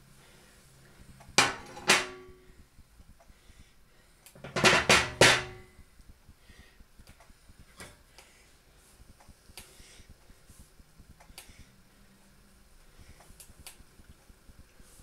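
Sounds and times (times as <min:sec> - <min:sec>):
cooker clattering on glass table: 0:01.4 - 0:02.3, 0:04.4 - 0:05.7.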